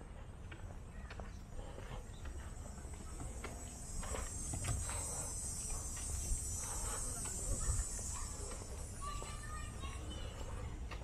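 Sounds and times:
light footsteps scuffing: 0.2 - 5.1, 7.2 - 11.0
high insect chorus: 2.0 - 10.6.

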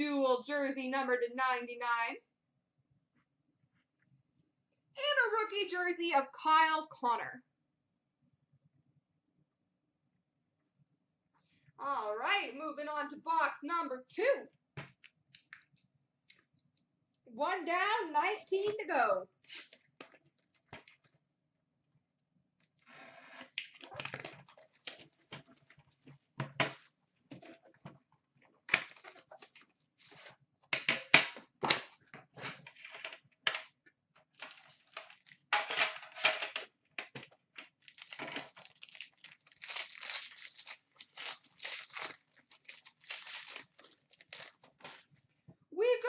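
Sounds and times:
cardboard and plastic wrapping ripping: 23.7 - 25.2, 34.4 - 35.4, 37.8 - 45.1.

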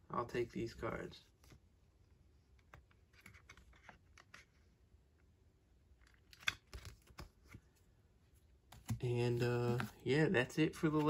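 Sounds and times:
cards rustling and clicking: 2.5 - 4.8, 5.8 - 11.0.

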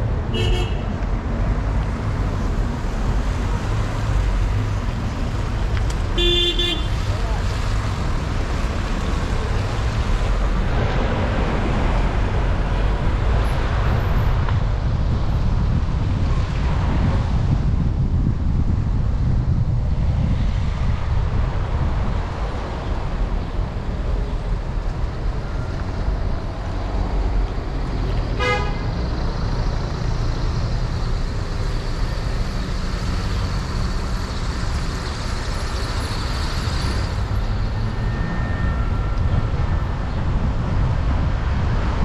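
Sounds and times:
car horn beep: 0.3 - 0.9, 6.2 - 7.0, 28.4 - 28.9
car driving on wet road: 1.6 - 17.7.

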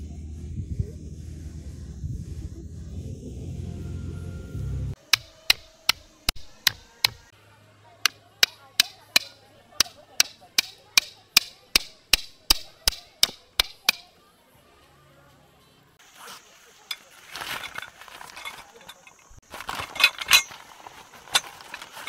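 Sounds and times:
hammer striking tent stake: 5.0 - 7.2, 8.0 - 14.1.

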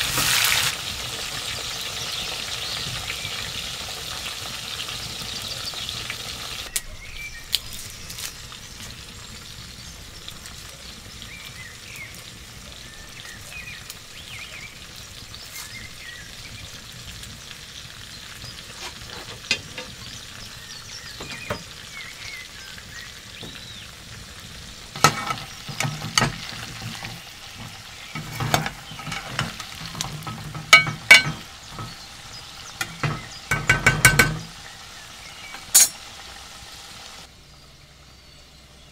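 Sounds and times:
potatoes sizzling in hot oil: 0.0 - 37.5
metal spoon clinking against pan: 28.2 - 32.0, 32.8 - 34.5, 35.6 - 36.0.

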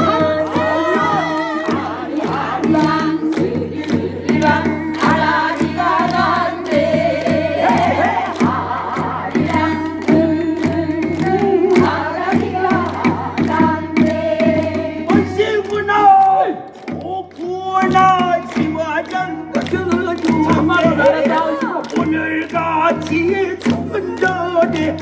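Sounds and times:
steady drum beat: 0.0 - 25.0
voices singing together: 0.0 - 25.0.

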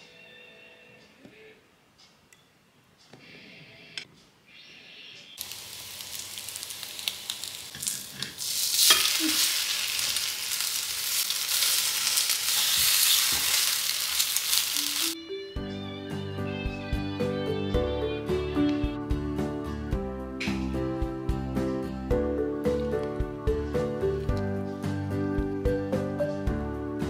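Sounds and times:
bread sizzling in a pan: 5.4 - 15.2
gentle music: 14.8 - 27.0.

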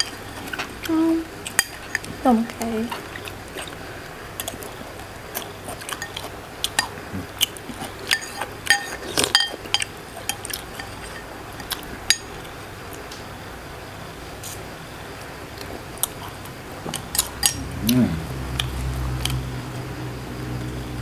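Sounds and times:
liquid stirring: 5.7 - 12.2
spoons clinking on ceramic bowl: 8.1 - 11.3.

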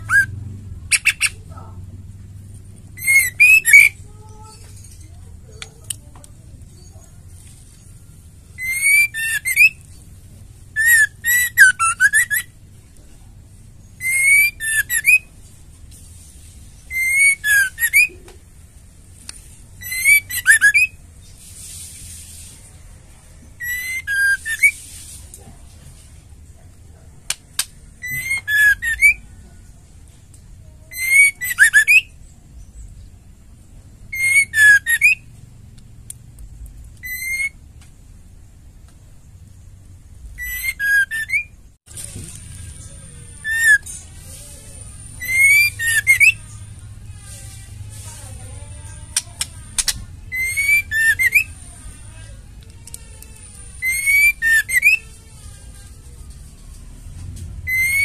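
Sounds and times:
bird whistling sharp notes: 3.0 - 4.0, 8.6 - 9.8, 10.8 - 12.5, 14.0 - 15.3, 16.9 - 18.1, 19.8 - 21.0, 23.6 - 24.8, 28.0 - 29.2, 30.9 - 32.1, 34.1 - 35.2, 37.0 - 37.6, 40.4 - 41.6, 43.4 - 44.0, 45.1 - 46.4, 49.8 - 51.5, 53.8 - 55.0, 57.7 - 58.0.

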